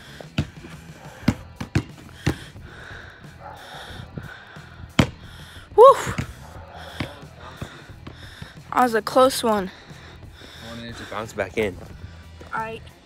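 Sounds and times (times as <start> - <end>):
basketball bouncing: 0.3 - 2.5, 4.9 - 5.3
ball hitting rim: 1.2 - 2.4, 5.0 - 5.2
person shouting: 5.8 - 6.2.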